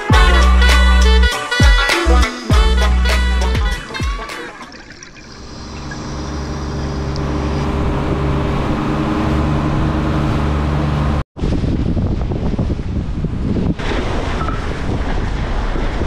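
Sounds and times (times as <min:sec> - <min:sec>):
boat engine humming: 0:02.1 - 0:11.2
rush of boat wake: 0:03.9 - 0:16.0
wind buffeting microphone: 0:11.4 - 0:16.0.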